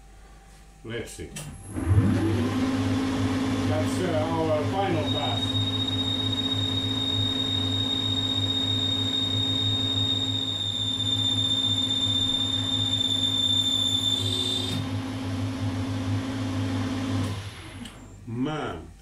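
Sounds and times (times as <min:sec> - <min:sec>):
metal lathe hum: 0:01.6 - 0:15.4
high-pitched lathe whine: 0:03.7 - 0:14.9.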